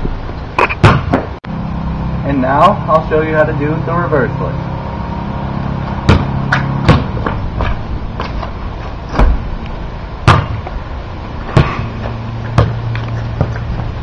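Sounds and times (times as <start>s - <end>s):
basketball thudding: 0.8s - 1.4s, 6.0s - 9.5s, 10.2s - 10.8s, 11.4s - 13.6s.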